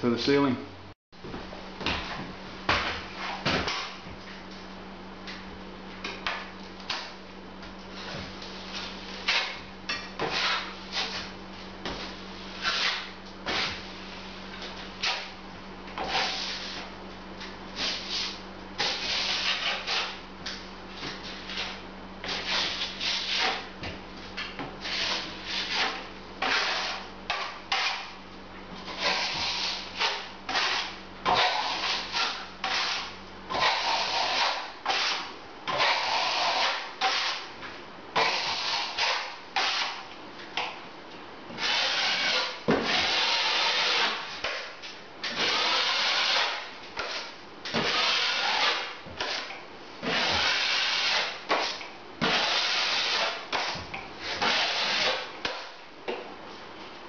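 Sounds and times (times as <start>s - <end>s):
trowel scraping plaster: 8.7s - 11.3s, 11.9s - 13.9s, 16.0s - 16.9s, 17.8s - 20.2s, 21.4s - 23.7s, 24.8s - 28.1s, 28.9s - 37.5s, 38.2s - 40.0s, 41.6s - 44.3s, 45.2s - 55.6s.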